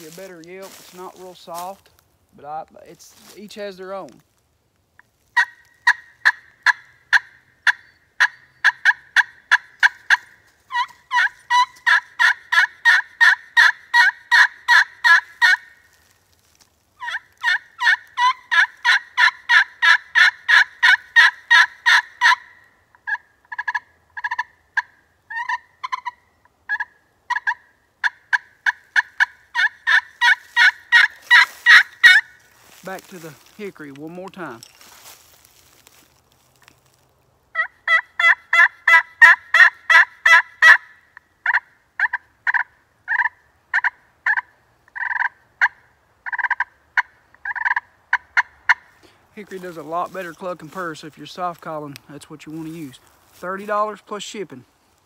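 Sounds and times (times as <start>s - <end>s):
turkey call yelps: 5.4s - 16.0s, 17.0s - 32.8s, 37.6s - 48.9s.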